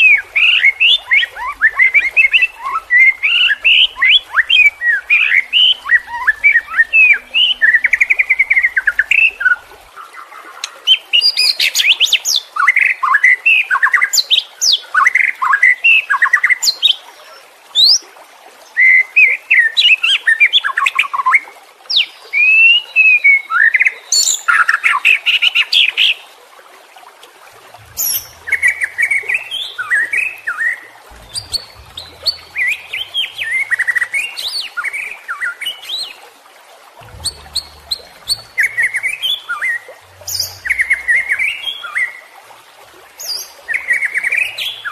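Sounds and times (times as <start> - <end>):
songbird whistled song: 37.1 - 42.2.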